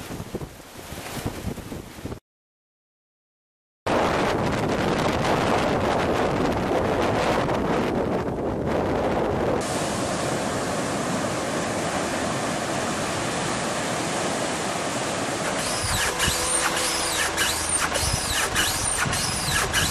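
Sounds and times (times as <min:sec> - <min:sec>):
wind buffeting microphone: 0:00.0 - 0:02.2, 0:03.9 - 0:13.5, 0:15.4 - 0:19.9
rushing floodwater: 0:09.6 - 0:19.9
high sweeping squeaks and ticks: 0:15.6 - 0:19.9.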